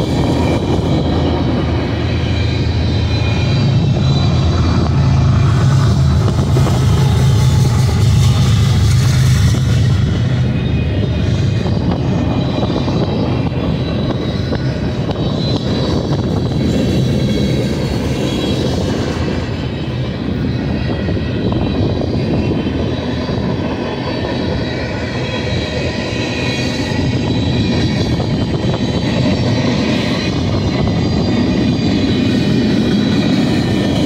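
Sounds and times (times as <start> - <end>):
train wheels rolling on rails: 0.0 - 34.0.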